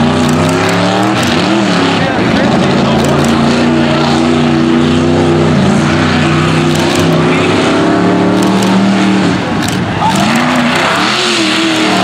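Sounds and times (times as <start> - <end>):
truck engine at high revs: 0.0 - 12.0.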